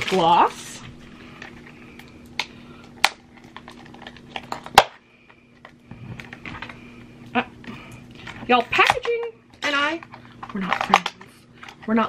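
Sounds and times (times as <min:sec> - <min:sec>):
plastic packaging clicks and crinkles: 0:01.4 - 0:06.8.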